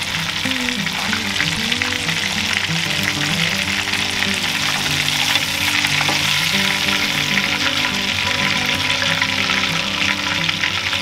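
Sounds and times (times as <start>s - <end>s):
fish deep-frying in oil: 0.0s - 11.0s.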